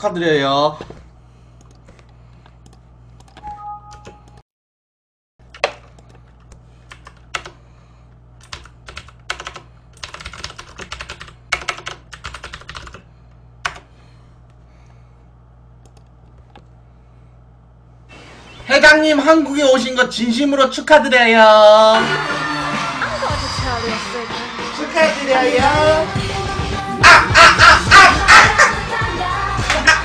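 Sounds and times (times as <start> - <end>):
steady low hum: 0.0 - 3.4, 5.4 - 21.4
two-note beep: 3.4 - 4.2.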